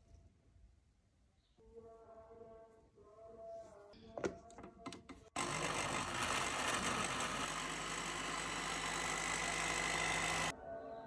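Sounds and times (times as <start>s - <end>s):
blender motor running: 5.4s - 10.5s.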